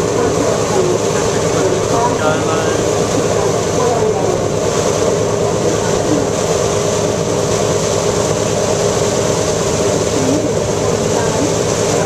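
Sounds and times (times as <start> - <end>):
boat engine drone: 0.0 - 12.0.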